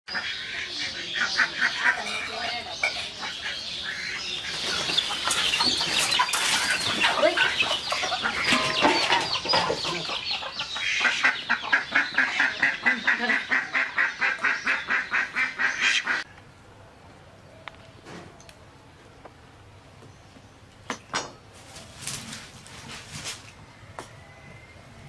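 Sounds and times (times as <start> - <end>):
ducks quacking in alarm: 0.1 - 16.3.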